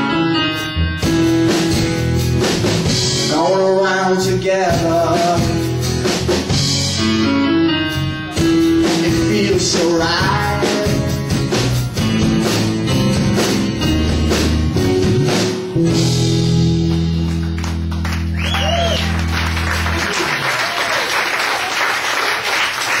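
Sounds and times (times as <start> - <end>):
live rock band playing: 0.0 - 20.9
audience applause: 16.9 - 23.0.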